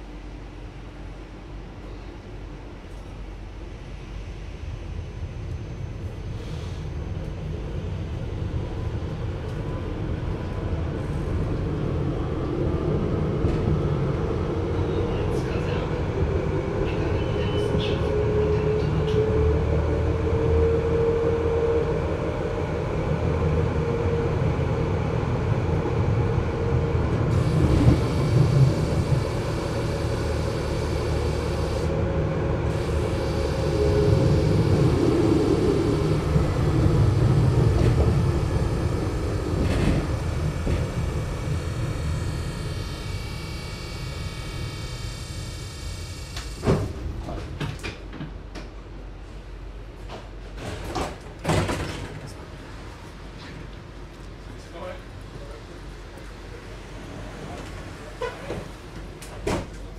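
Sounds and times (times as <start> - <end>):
muffled tram running: 6.1 - 21.2, 22.3 - 45.9.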